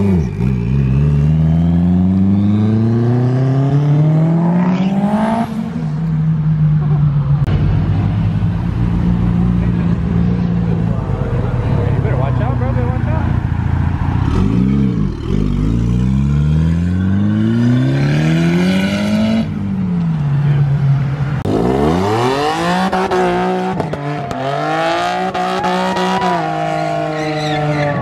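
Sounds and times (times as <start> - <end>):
second car revving hard: 0.0 - 5.9, 14.2 - 19.6, 21.4 - 28.0
car accelerating hard: 21.4 - 28.0.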